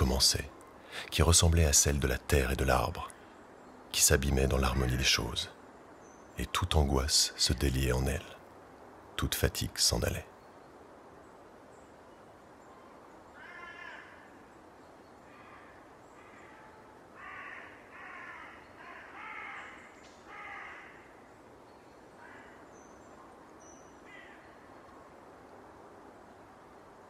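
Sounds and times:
faint steady hiss: 0.0 - 27.0
crows cawing: 13.3 - 14.5, 15.3 - 21.3, 22.1 - 22.9, 24.0 - 24.7.

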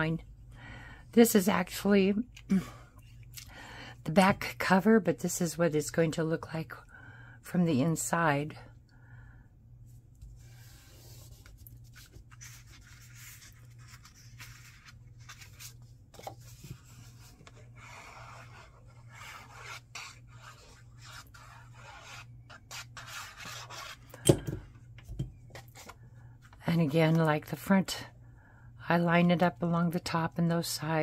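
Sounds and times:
cardstock sheets sliding and rubbing: 10.4 - 24.0.

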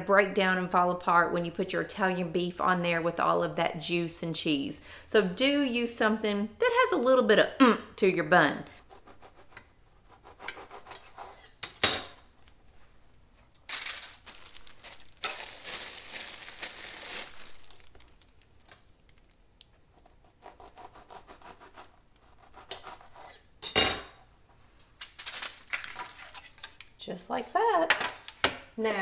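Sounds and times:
knife sawing through bread: 8.8 - 11.6, 20.0 - 23.5.

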